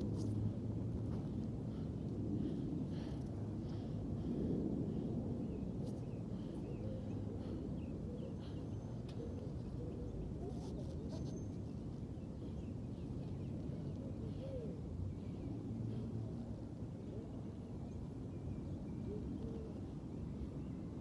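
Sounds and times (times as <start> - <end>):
steady low rumble: 0.0 - 10.5.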